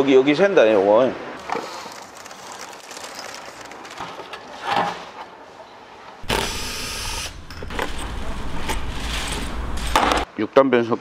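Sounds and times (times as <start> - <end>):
power tool whining: 6.2 - 7.8.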